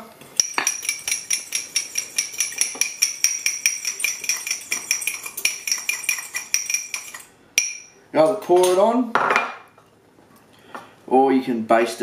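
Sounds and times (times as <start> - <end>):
spoon clinking in ceramic dish: 0.4 - 8.8.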